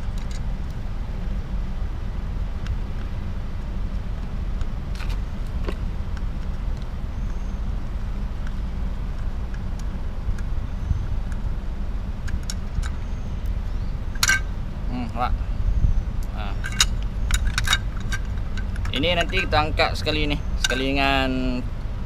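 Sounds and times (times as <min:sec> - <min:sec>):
low rumble: 0:00.0 - 0:22.0
light metallic clicks: 0:16.2 - 0:21.0.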